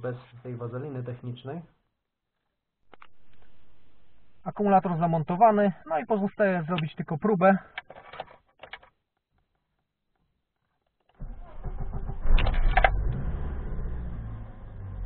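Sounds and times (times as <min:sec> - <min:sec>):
car starter motor cranking: 0:11.2 - 0:14.9
car engine idling: 0:11.2 - 0:15.0.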